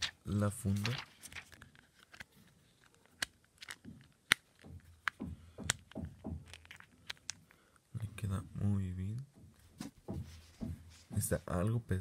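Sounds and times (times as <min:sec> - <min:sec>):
silicone case creaking: 0:02.9 - 0:07.4
phone case clicks and snaps: 0:03.2 - 0:07.4.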